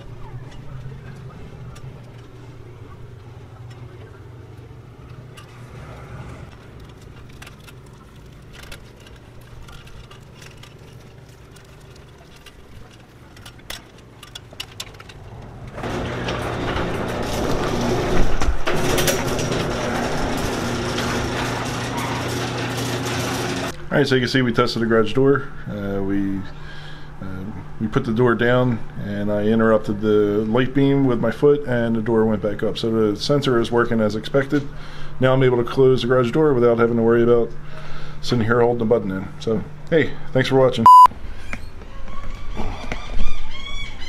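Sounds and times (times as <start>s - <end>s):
wires and plastic connector rustling: 6.5s - 23.7s
garage door opener running: 15.6s - 23.8s.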